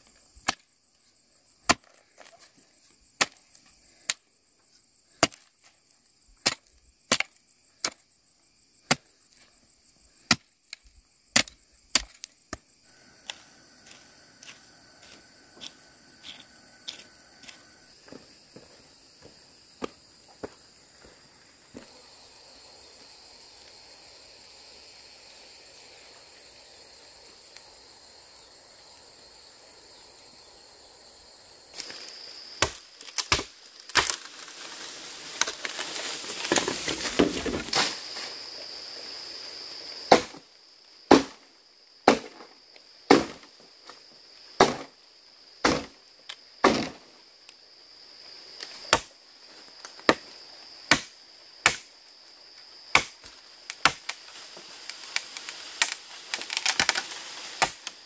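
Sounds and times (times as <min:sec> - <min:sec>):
insects droning: 0:00.0 - 0:58.0
machete chopping bamboo: 0:01.6 - 0:02.3, 0:03.2 - 0:03.4, 0:05.2 - 0:05.5, 0:06.4 - 0:08.0, 0:10.2 - 0:10.5, 0:11.3 - 0:12.7, 0:32.6 - 0:34.4, 0:40.1 - 0:40.4, 0:41.1 - 0:41.4, 0:42.0 - 0:42.5, 0:43.1 - 0:43.5, 0:44.6 - 0:45.0, 0:45.6 - 0:46.0, 0:46.6 - 0:47.0, 0:48.9 - 0:49.2, 0:49.9 - 0:51.9, 0:52.9 - 0:54.2, 0:55.0 - 0:58.0
rustling through dry leaves: 0:33.7 - 0:39.4.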